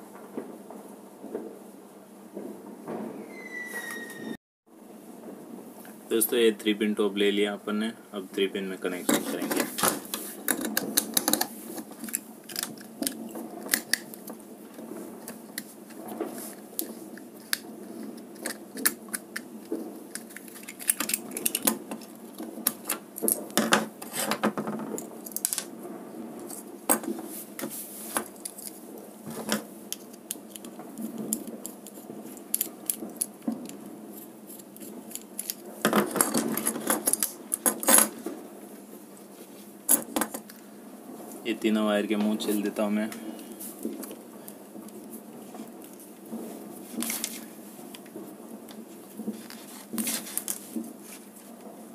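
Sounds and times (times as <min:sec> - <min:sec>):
plastic parts knocking on wood: 0:23.5 - 0:25.6.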